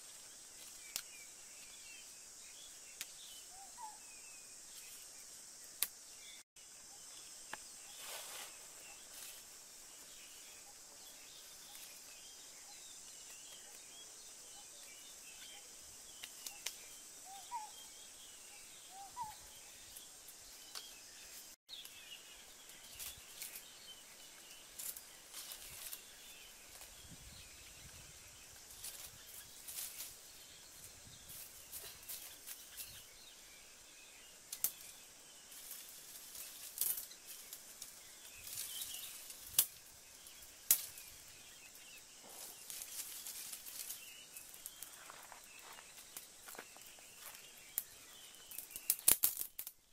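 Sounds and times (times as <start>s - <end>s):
twigs rustling and snapping: 0.0s - 1.8s, 4.8s - 6.0s, 11.6s - 12.2s, 16.1s - 16.9s, 22.6s - 23.7s, 24.4s - 27.0s, 28.5s - 30.3s, 31.3s - 33.0s, 34.5s - 41.3s, 42.6s - 49.9s
bird chirping: 0.0s - 35.5s, 37.0s - 49.2s
steady high hiss: 0.0s - 49.9s
kindling fire crackling: 34.4s - 41.4s, 42.6s - 49.8s.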